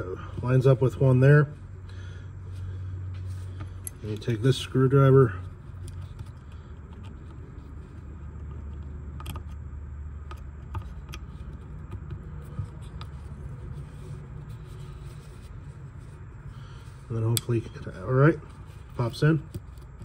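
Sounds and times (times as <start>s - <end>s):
low background rumble: 0.0s - 20.0s
screwdriver clicking and scraping: 5.4s - 9.6s, 10.2s - 15.5s, 17.1s - 20.0s.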